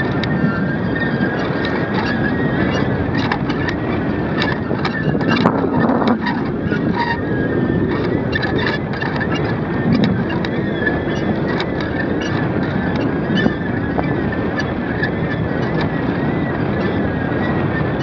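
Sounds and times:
wind rushing over microphone: 0.0 - 18.0.

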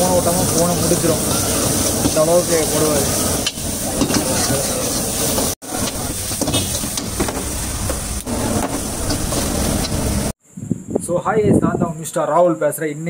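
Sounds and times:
frying hiss: 0.0 - 10.4
ladle scraping and knocking on wok: 3.4 - 10.3.

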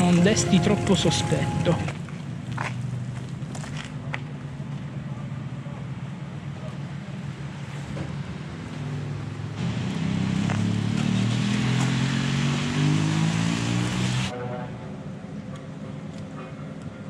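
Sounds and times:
vehicle engine passing: 8.8 - 14.3
tyres hissing on wet road: 9.6 - 14.3.

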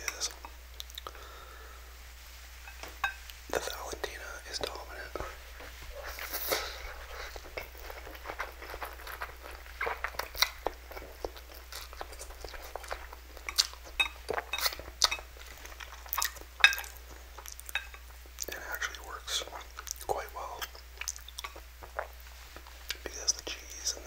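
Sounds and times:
wet chewing with mouth clicks: 0.1 - 1.2, 5.9 - 23.8.

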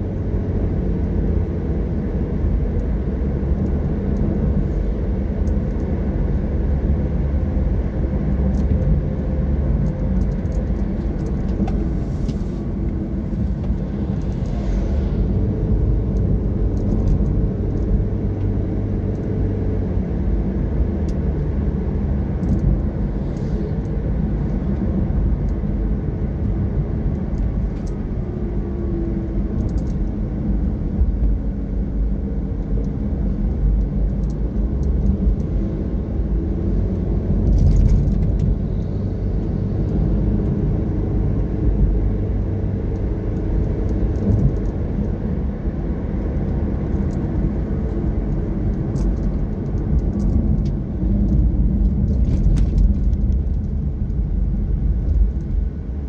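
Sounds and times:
car engine and tyre rumble: 0.0 - 56.0.

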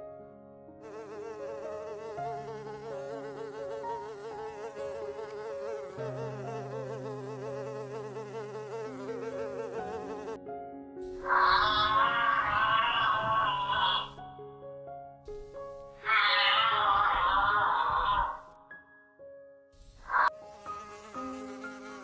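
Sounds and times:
honeybee buzzing: 0.8 - 10.4, 20.1 - 22.0.

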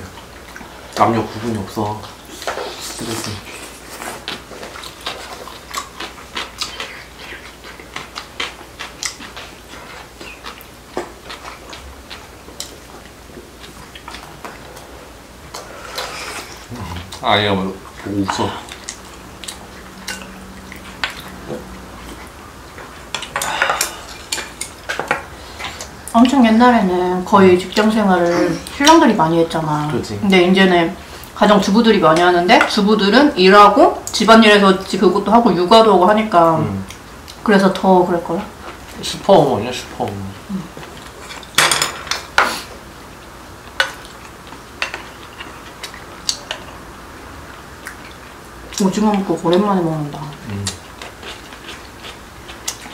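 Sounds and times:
faint steady hum: 0.0 - 52.9.

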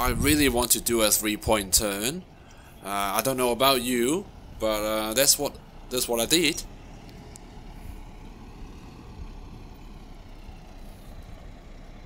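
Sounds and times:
car engine running at low revs: 0.0 - 12.0.

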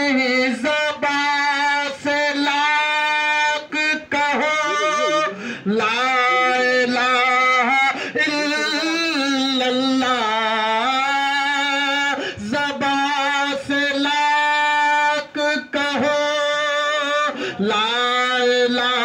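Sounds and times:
man singing unaccompanied: 0.0 - 19.0.

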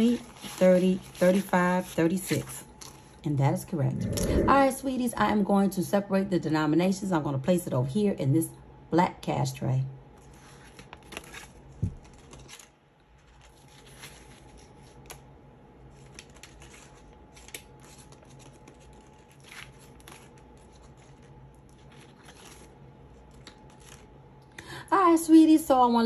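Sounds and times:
banknotes rustling: 0.0 - 3.2, 10.2 - 24.2.

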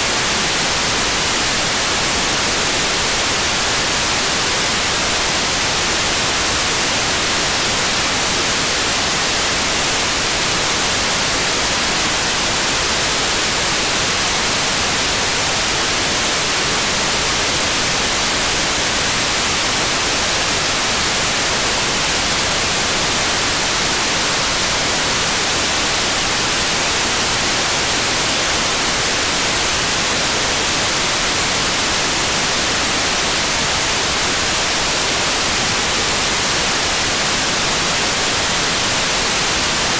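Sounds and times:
radio static hiss: 0.0 - 39.9.

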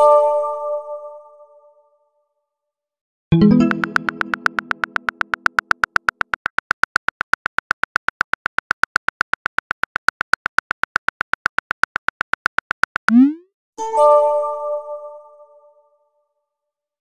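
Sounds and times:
phone keyboard typing clicks: 3.6 - 13.4.

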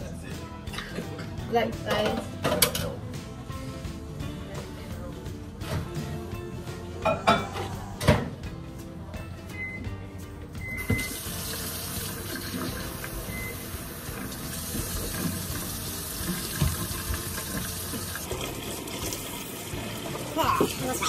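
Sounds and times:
water running: 10.6 - 21.0.

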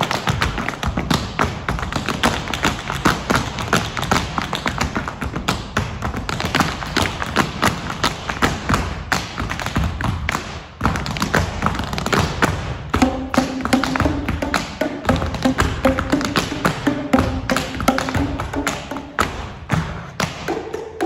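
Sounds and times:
plastic tubes struck in rhythm: 0.0 - 21.0
hollow knocks and taps: 10.9 - 21.0.

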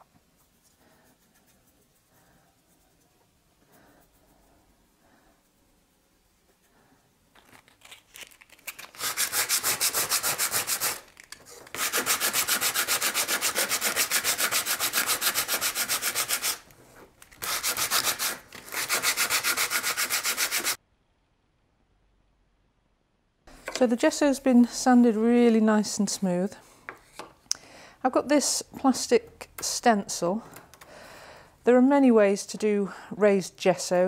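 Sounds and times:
sandpaper rubbing: 8.5 - 16.7, 17.3 - 20.8.

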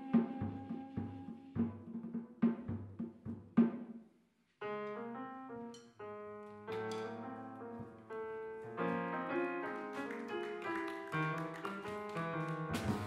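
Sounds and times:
piano playing jazz chords: 4.6 - 13.0.

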